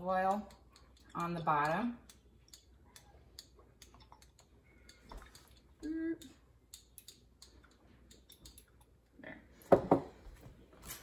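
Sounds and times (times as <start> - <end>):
person humming: 5.8 - 6.4.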